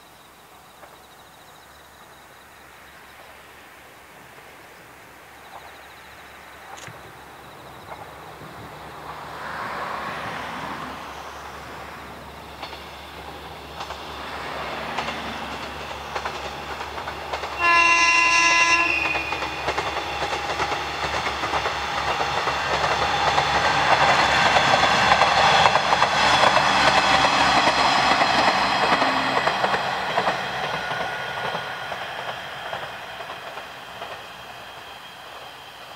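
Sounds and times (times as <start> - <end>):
diesel train engine and wheels: 0.0 - 35.9
train horn blast: 17.6 - 19.7.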